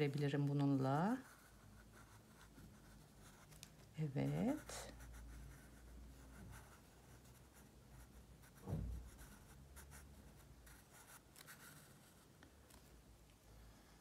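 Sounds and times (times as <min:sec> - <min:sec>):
pen scratching on paper: 0:01.1 - 0:12.3.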